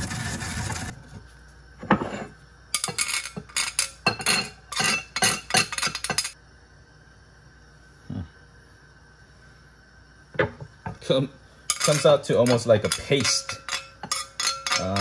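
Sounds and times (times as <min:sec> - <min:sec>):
spoon clinking on bowl: 0:11.7 - 0:15.0
spoon scraping metal grater: 0:11.7 - 0:15.0.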